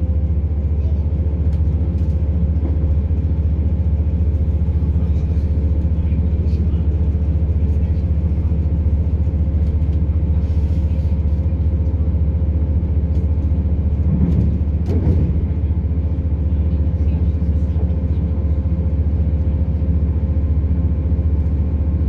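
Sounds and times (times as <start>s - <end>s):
diesel engine drone: 0.0s - 22.0s
train wheels rumbling on rails: 0.0s - 22.0s.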